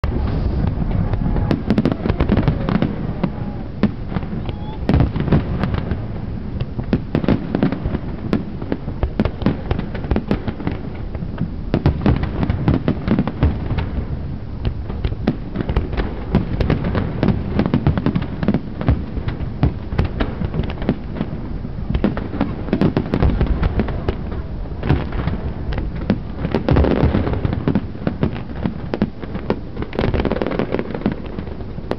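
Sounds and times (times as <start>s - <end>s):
fireworks bangs and crackles: 0.0s - 31.9s.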